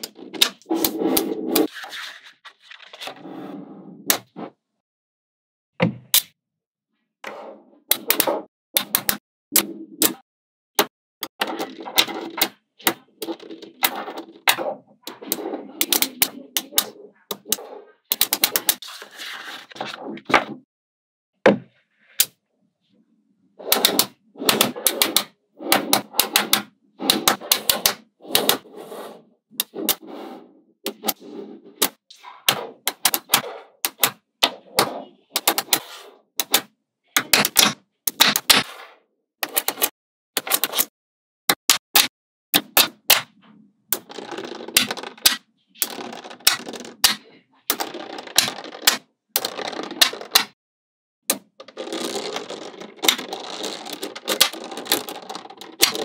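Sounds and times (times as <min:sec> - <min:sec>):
magnetic balls clicking: 0:31.8 - 0:35.8, 0:44.0 - 0:50.6.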